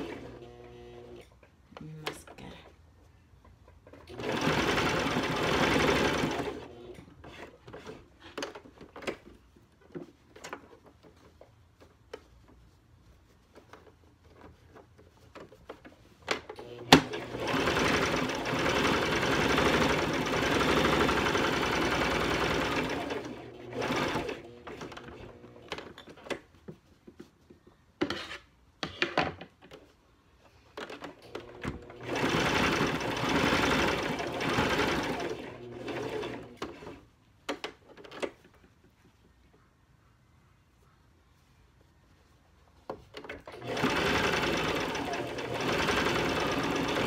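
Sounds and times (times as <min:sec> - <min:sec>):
sewing machine stitching: 0:00.0 - 0:01.3, 0:03.9 - 0:09.2, 0:15.3 - 0:26.2, 0:30.8 - 0:38.4, 0:43.1 - 0:47.0
sewing machine clicks: 0:43.2 - 0:47.0.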